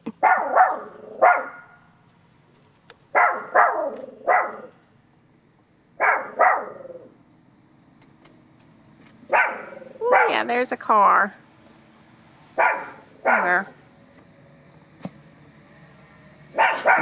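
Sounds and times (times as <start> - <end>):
small dog barking: 0.2 - 1.8, 3.1 - 4.7, 6.0 - 7.1, 9.3 - 10.5, 12.6 - 13.7, 16.5 - 17.0.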